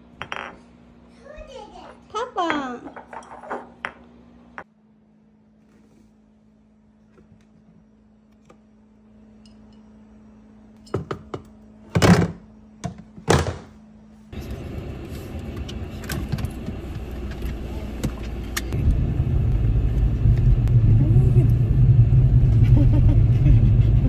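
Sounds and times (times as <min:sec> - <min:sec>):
car engine and cabin noise: 0:14.3 - 0:24.0.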